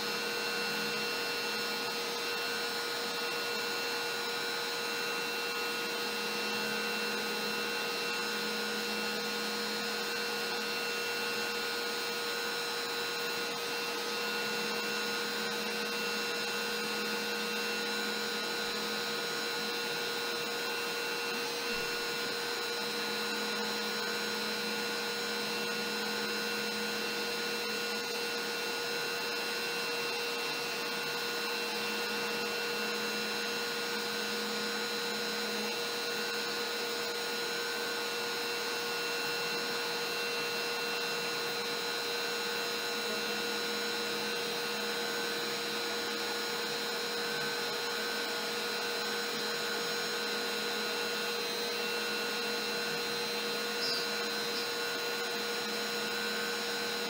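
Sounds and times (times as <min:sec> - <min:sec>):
router whining: 0:00.0 - 0:57.0.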